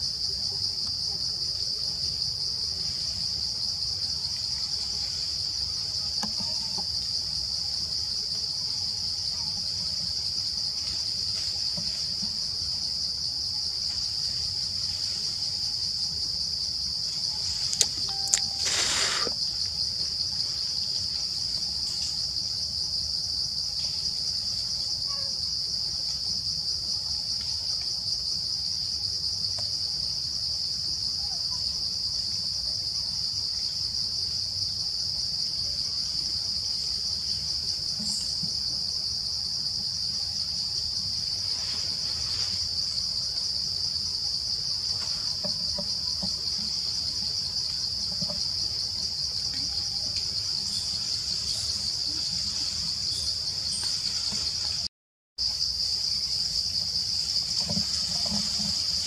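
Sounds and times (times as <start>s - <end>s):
insects droning: 0.0s - 59.0s.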